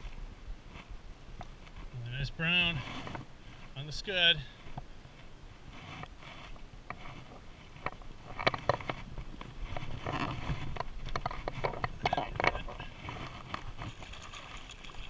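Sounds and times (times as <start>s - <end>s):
water splashing and sloshing: 9.7s - 15.0s
sharp splashes and knocks: 13.5s - 15.0s.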